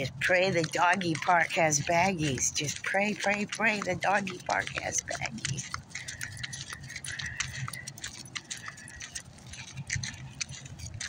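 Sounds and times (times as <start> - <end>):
footsteps on paved road: 0.0 - 11.0.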